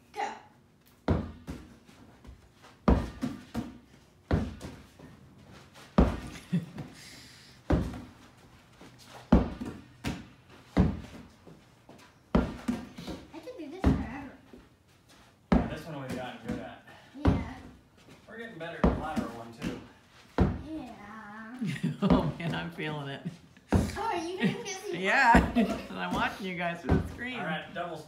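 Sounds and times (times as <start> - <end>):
exercise ball bouncing thunks: 1.0 - 1.8, 2.8 - 5.0, 6.0 - 6.4, 7.7 - 8.2, 9.3 - 11.3, 12.3 - 14.4, 15.5 - 17.8, 18.7 - 20.8, 21.9 - 22.7, 23.6 - 24.1, 25.3 - 27.5.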